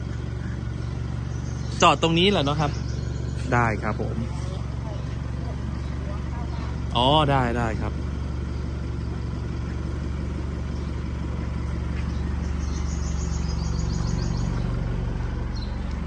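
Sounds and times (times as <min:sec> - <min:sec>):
diesel engine idling: 0:00.0 - 0:16.0
rapid high chirps: 0:10.4 - 0:15.8.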